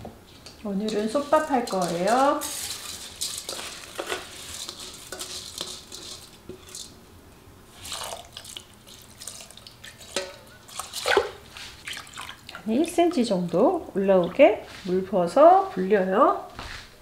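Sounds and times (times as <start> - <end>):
wet rice rustling: 0.3 - 7.0, 7.7 - 13.5
water trickling: 7.9 - 13.7.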